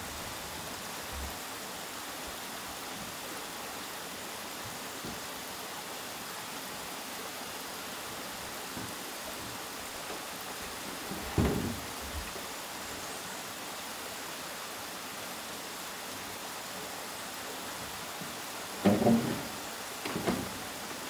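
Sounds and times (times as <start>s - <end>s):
steady hiss: 0.0s - 21.0s
thump on plank deck: 11.1s - 11.9s, 18.8s - 20.6s.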